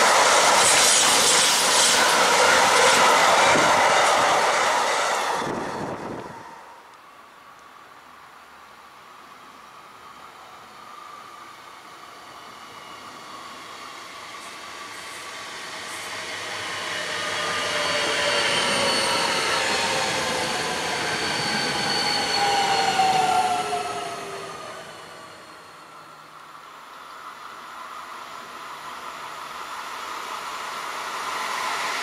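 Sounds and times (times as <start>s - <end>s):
train wheel and rail noise: 0.0s - 32.0s
whining tones sliding down: 15.0s - 26.4s.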